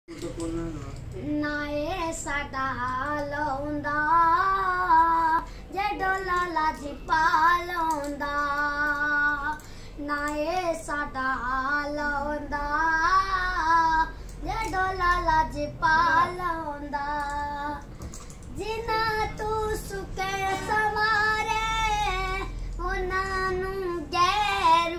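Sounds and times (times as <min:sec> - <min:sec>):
short breaths: 0:05.4 - 0:05.7, 0:09.6 - 0:10.0.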